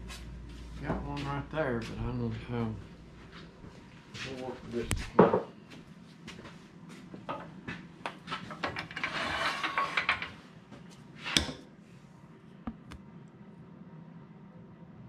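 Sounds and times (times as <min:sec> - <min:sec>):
tool handling clicks and knocks: 0:08.1 - 0:10.4
rustling and scraping: 0:08.2 - 0:11.4.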